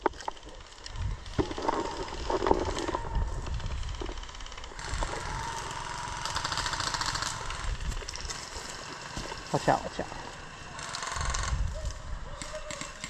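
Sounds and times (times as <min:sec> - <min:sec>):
footsteps in woods: 0:00.0 - 0:11.9
fast even rattle: 0:01.3 - 0:09.1.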